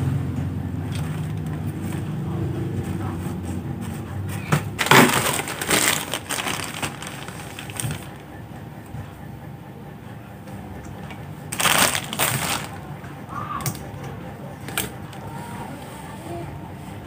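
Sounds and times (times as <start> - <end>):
plastic bag crinkling: 4.7 - 8.2, 11.5 - 12.9.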